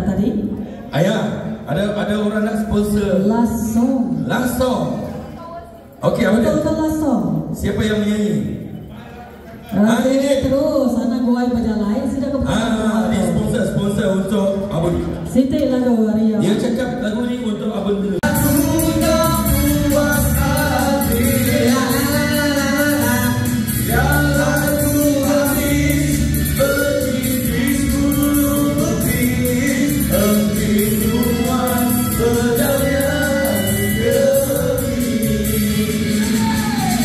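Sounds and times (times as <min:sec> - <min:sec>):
backing music with beat: 0:18.2 - 0:37.0
person singing: 0:18.2 - 0:37.0.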